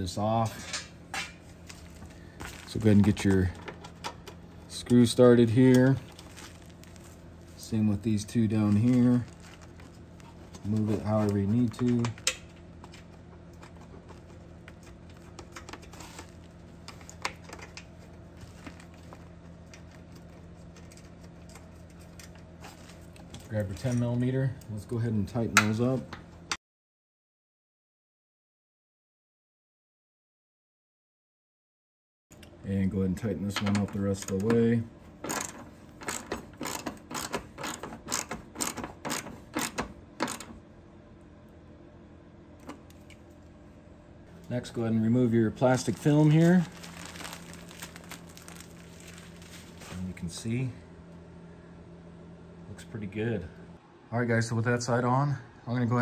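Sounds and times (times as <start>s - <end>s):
steady low hum: 0.0s - 26.6s, 32.3s - 56.0s
plastic wrap crinkling: 6.0s - 7.5s, 8.7s - 11.4s, 45.6s - 50.2s
socket ratchet pawl clicking: 35.3s - 40.5s.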